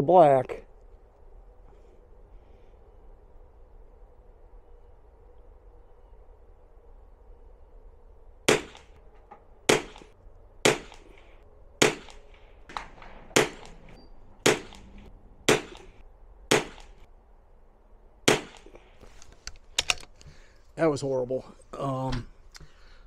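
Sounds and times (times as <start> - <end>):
rifle shots: 8.5 - 9.0, 9.7 - 11.1, 11.8 - 17.0, 18.2 - 18.8.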